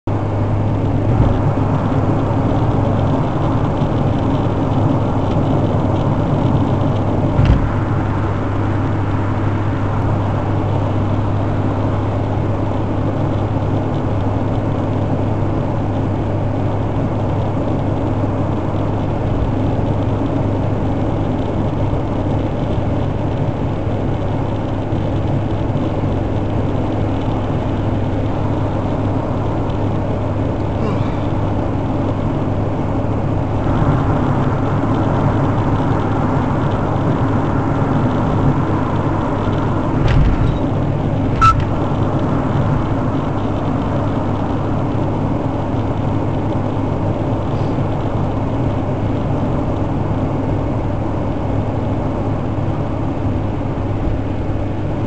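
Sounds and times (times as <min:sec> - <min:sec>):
car engine and tyre drone: 0:00.1 - 0:55.0
brief knock: 0:07.4 - 0:07.7.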